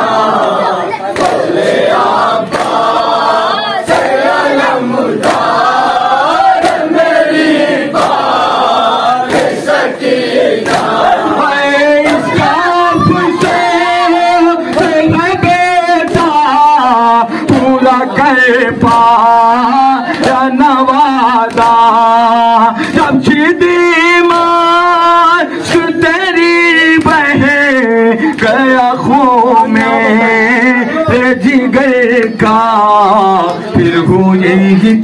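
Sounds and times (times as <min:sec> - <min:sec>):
crowd chanting a lament: 0:00.0 - 0:35.0
chest-beating slaps: 0:01.1 - 0:01.7, 0:02.4 - 0:03.0, 0:05.2 - 0:05.6, 0:06.6 - 0:07.0, 0:08.0 - 0:08.5, 0:09.2 - 0:09.8, 0:10.6 - 0:11.2, 0:12.0 - 0:16.4, 0:20.1 - 0:20.5
man singing lead: 0:10.8 - 0:35.0.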